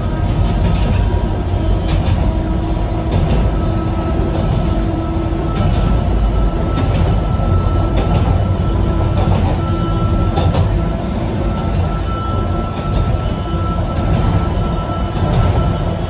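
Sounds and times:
train wheels rumbling: 0:00.0 - 0:16.0.

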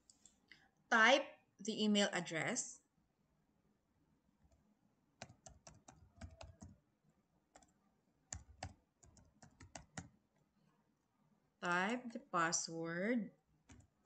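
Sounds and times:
computer keyboard typing: 0:05.2 - 0:06.8, 0:07.5 - 0:10.1, 0:13.6 - 0:14.0.

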